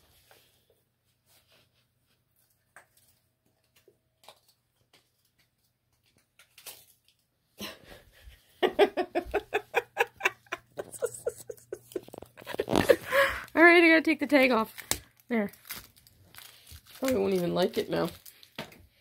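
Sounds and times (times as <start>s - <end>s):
person laughing: 8.6s - 13.5s.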